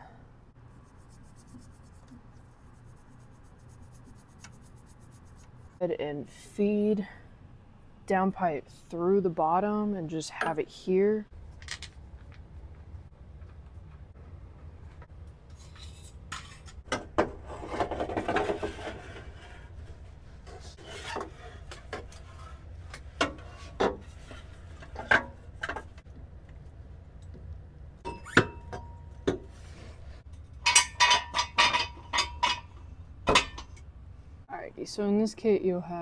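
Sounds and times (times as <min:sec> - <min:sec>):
metal pipe scraping underbody: 0:17.4 - 0:25.2.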